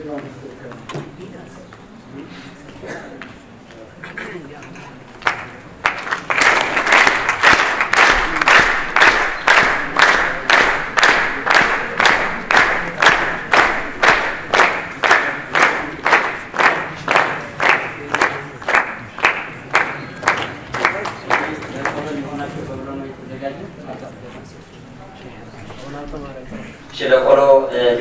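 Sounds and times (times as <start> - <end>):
crowd clapping in rhythm: 5.1 - 22.3
general applause: 5.2 - 22.3.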